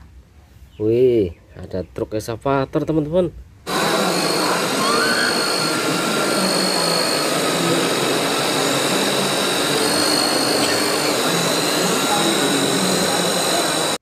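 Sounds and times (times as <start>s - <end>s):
hydraulic pump whine: 3.7s - 14.0s.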